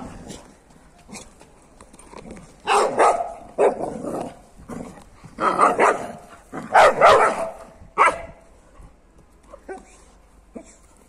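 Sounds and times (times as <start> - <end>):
dog barking: 2.7 - 3.8, 5.6 - 8.4.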